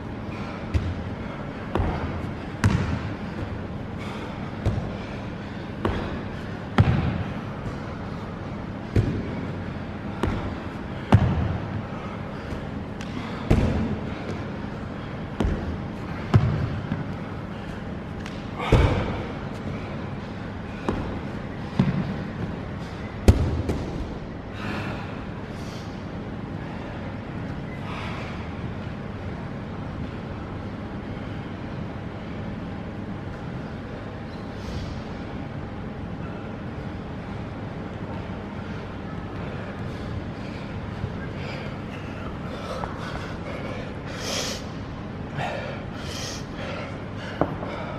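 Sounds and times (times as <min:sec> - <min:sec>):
low room hum: 0:00.0 - 0:47.9
feet thudding on a box: 0:05.8 - 0:07.4, 0:08.9 - 0:09.5, 0:10.1 - 0:11.8, 0:13.3 - 0:14.4.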